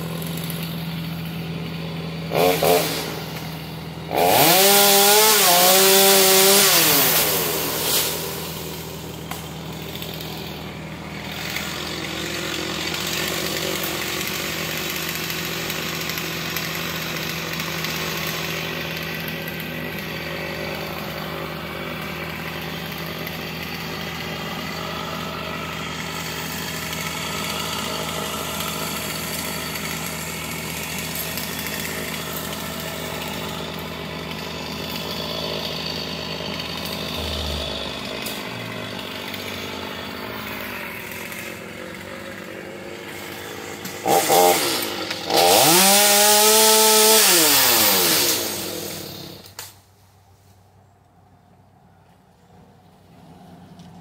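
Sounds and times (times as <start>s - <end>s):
chainsaw cutting: 0.0s - 50.5s
low engine hum: 37.0s - 39.2s.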